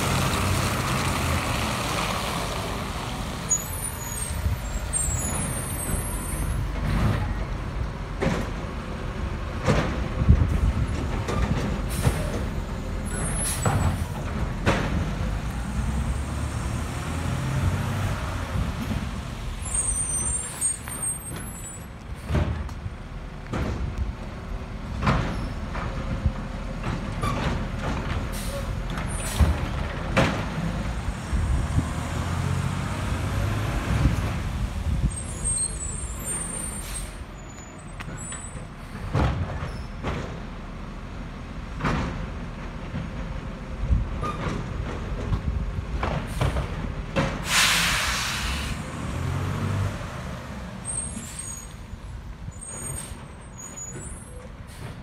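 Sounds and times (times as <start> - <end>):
air brakes hissing: 11.8 - 14.2, 28.3 - 29.6, 35.1 - 39.1, 47.4 - 49.0, 50.8 - 51.9, 52.5 - 55.0.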